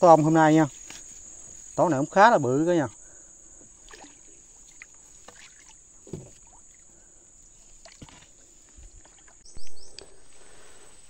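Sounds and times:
high insect drone: 0.0 - 11.0
paddle splashing water: 3.6 - 9.5
paddle knocking against hull: 5.3 - 6.6.

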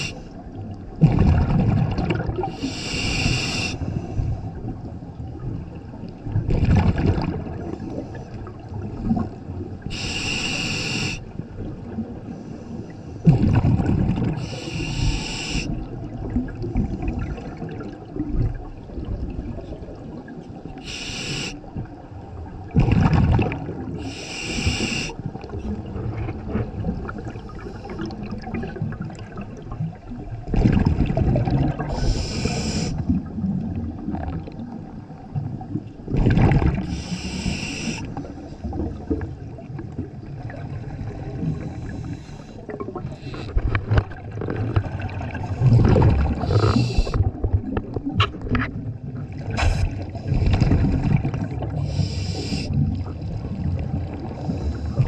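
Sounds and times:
regulator inhalation hiss: 2.6 - 4.0, 9.9 - 11.3, 14.4 - 15.8, 20.8 - 21.7, 24.0 - 25.2, 31.9 - 33.0, 36.8 - 38.2, 43.2 - 43.6, 46.5 - 47.2, 51.8 - 52.8
bubbling exhalations: 42.6 - 53.2.

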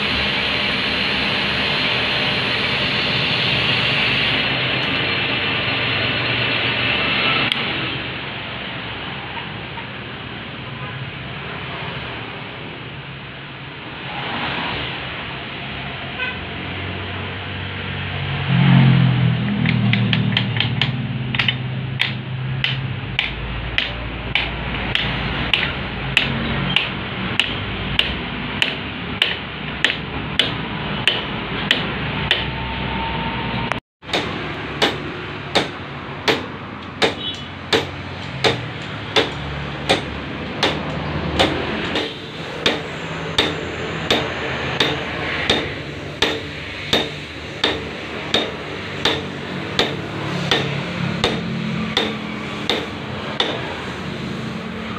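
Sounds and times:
workshop hum: 0.0 - 54.9
small hammer tapping metal: 19.6 - 32.5, 34.1 - 53.6.

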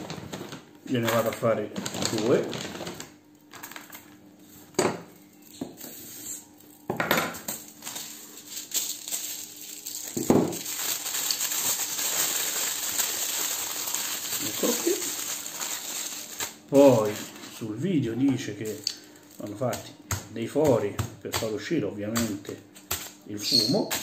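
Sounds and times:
foil torn from roll: 0.0 - 4.0, 7.4 - 17.6
foil crinkling: 0.0 - 4.2, 7.4 - 17.8, 18.4 - 19.8.

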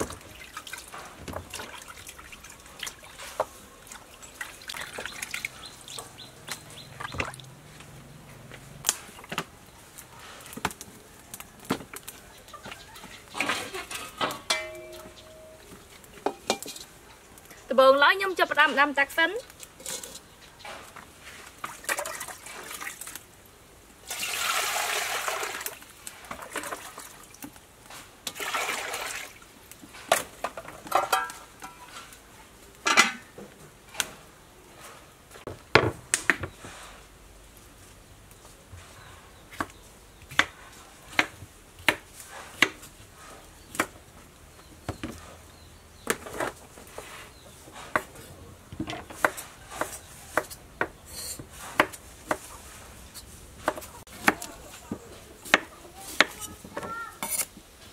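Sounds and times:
metal clanking: 13.6 - 15.5
water pouring into metal pot: 24.0 - 27.4, 28.2 - 29.4.

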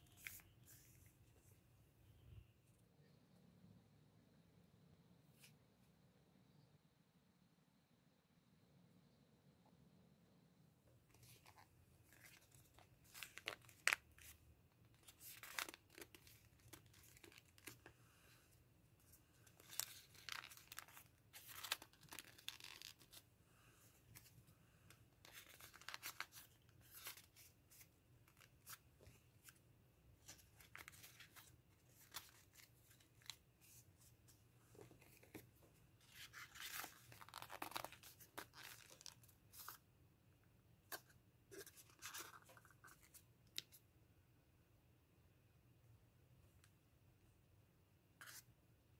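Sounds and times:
paper rustling and crinkling: 11.2 - 17.9, 19.0 - 23.2, 25.2 - 29.6, 30.2 - 39.8.

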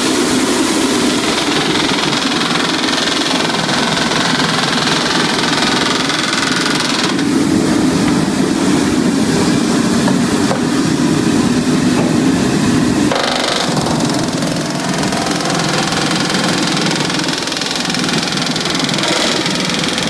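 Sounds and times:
pneumatic rivet hammer rattling: 1.3 - 7.3, 13.1 - 20.0.

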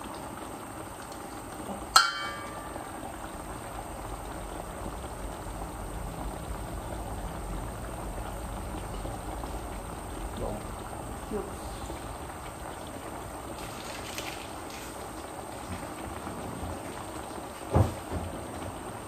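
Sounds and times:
sauce bubbling in a pot: 0.0 - 19.0
utensil clinking on pot: 1.9 - 3.0.

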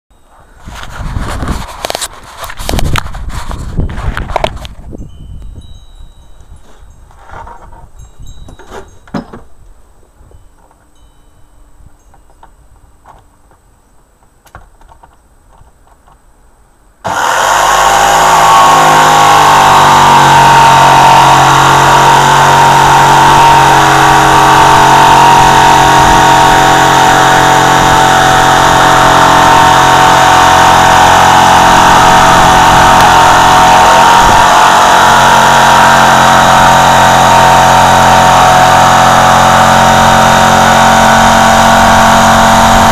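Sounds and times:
electric jigsaw cutting: 17.1 - 42.9.

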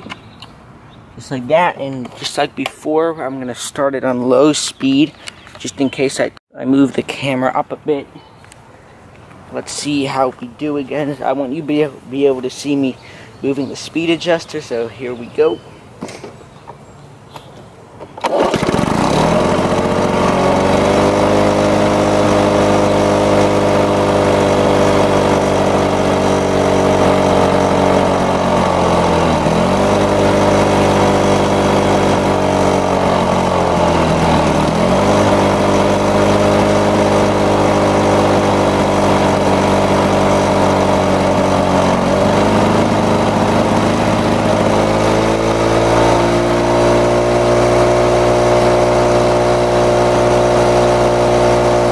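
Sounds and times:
two-stroke mower engine running: 18.0 - 51.9.

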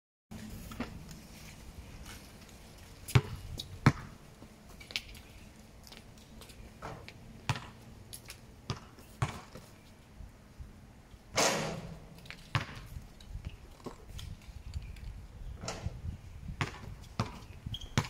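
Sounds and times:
basketball bouncing on hard court: 3.1 - 4.1, 7.5 - 7.8, 8.7 - 9.6, 12.4 - 12.9, 16.6 - 18.0.

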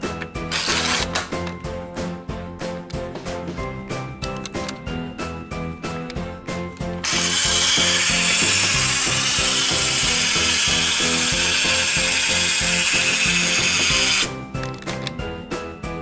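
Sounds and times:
background music: 0.0 - 16.0
ratcheting whir of plastic gears: 0.5 - 1.3, 7.0 - 14.3.

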